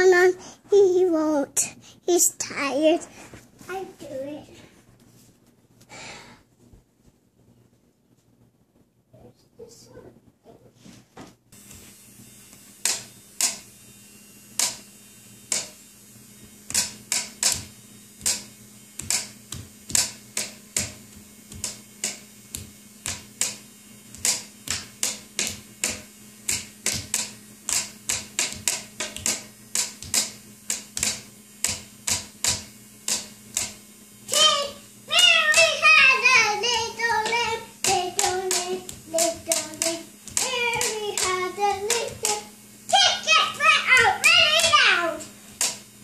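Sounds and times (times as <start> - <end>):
faint steady hum: 0.0 - 46.0
sharp slaps keeping a beat: 12.8 - 13.7, 14.6 - 14.8, 15.5 - 15.8, 16.6 - 45.9.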